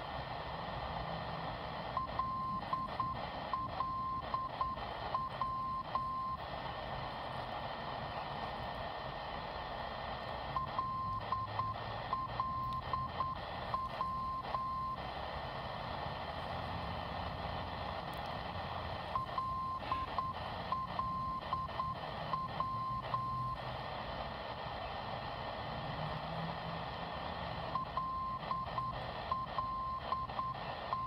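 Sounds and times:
radio static hiss: 0.0s - 31.0s
morse code beeping tone: 2.0s - 6.4s, 10.5s - 15.0s, 19.0s - 23.6s, 27.7s - 31.0s.

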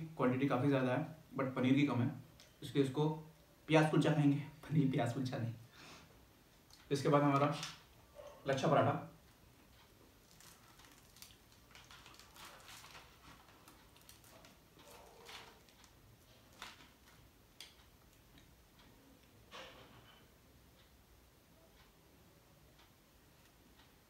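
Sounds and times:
flatbread crackling and tearing: 10.2s - 17.2s.

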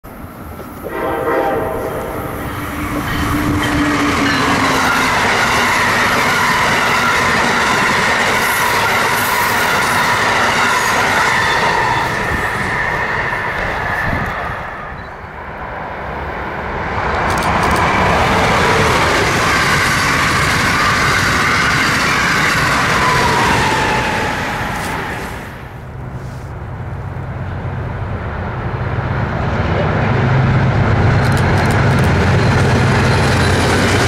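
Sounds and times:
train cars rumbling and clattering: 0.0s - 34.0s
train horn chord: 0.8s - 3.8s.

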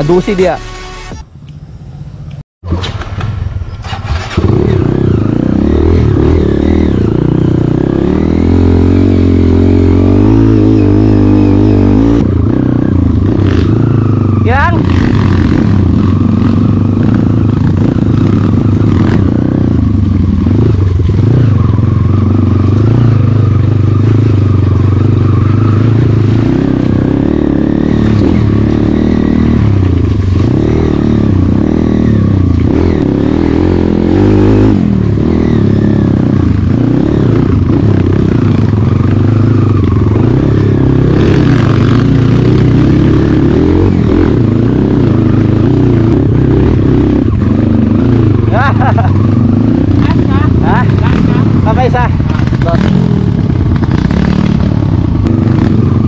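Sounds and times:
motorcycle engine revving: 2.7s - 56.0s
motorcycle clatter: 44.2s - 56.0s.

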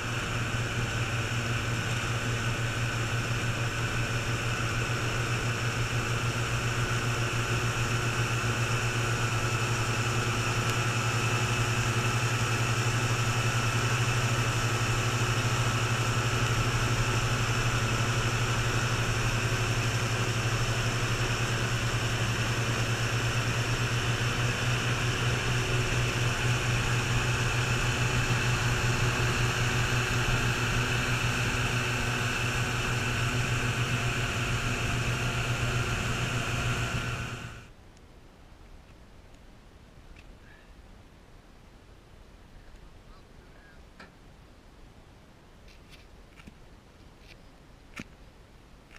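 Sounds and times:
outboard motor engine drone: 0.0s - 37.7s.

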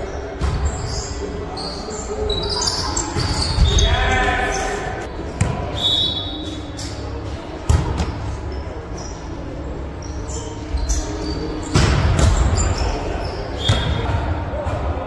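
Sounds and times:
shoes squeaking on gym floor: 0.0s - 4.9s, 8.0s - 14.1s
players' voices: 0.0s - 15.0s.

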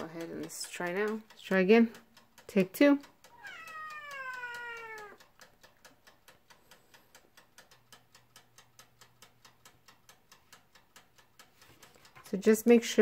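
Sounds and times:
dial timer ticking: 0.0s - 13.0s
cat meowing: 3.3s - 5.2s.

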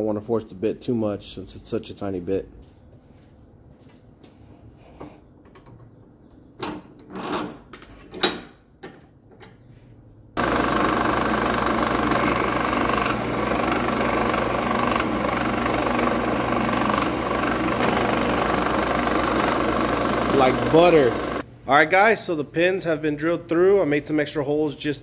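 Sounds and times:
drill press drilling steel: 10.4s - 21.4s.

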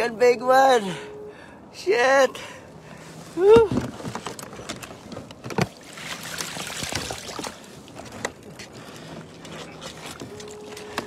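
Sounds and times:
water splashing and streaming: 5.5s - 11.0s.

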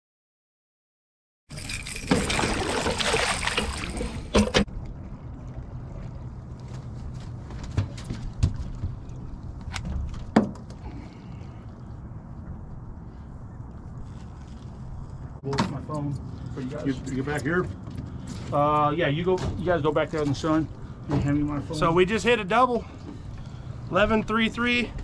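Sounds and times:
rushing splashy water: 1.6s - 4.7s.

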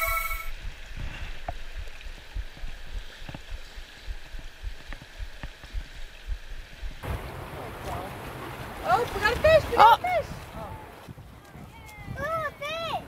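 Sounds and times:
river running over stones: 0.0s - 11.1s
low thumps on microphone: 0.5s - 7.2s.

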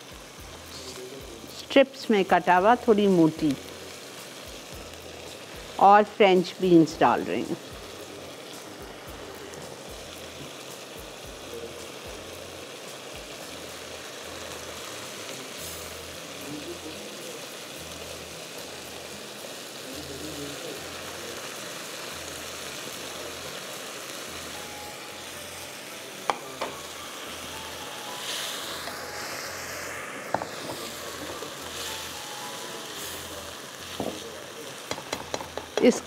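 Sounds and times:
vegetables sizzling in hot oil: 0.0s - 36.0s
spatula stirring in wok: 28.2s - 36.0s.

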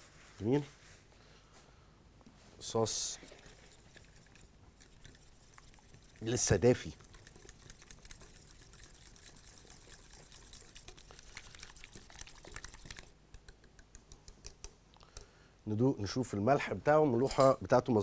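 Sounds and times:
wet stirring of sauce: 2.8s - 15.3s.

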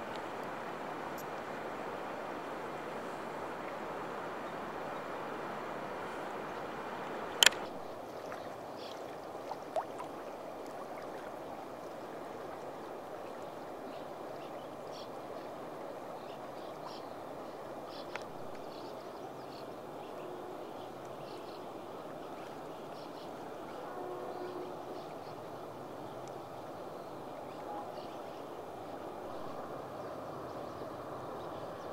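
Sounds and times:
river current rushing: 0.0s - 31.9s.

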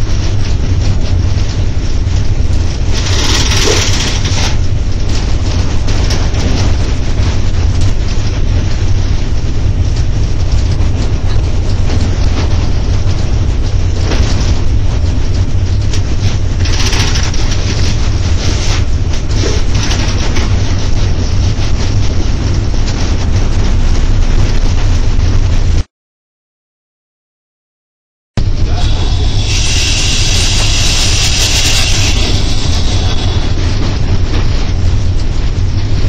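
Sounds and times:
train wheels rumbling on rails: 0.0s - 25.9s, 28.4s - 36.0s
bright hiss: 28.7s - 34.3s.

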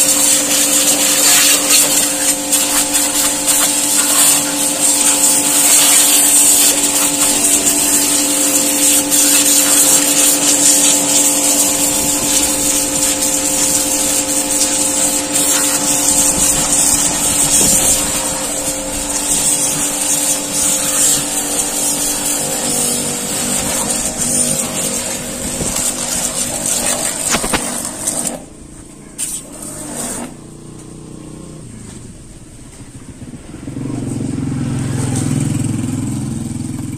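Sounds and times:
water jet hissing: 0.0s - 28.5s
pressure washer pump hum: 0.0s - 36.9s.

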